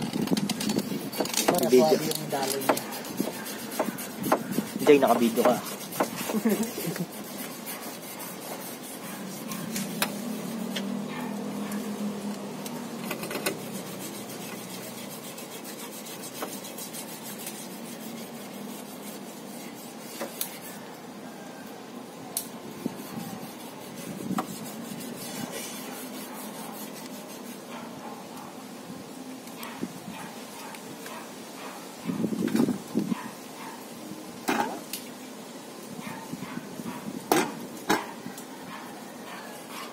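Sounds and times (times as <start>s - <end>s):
toothbrush rasping on rubber: 0.7s - 10.9s, 13.5s - 20.8s, 22.8s - 27.6s.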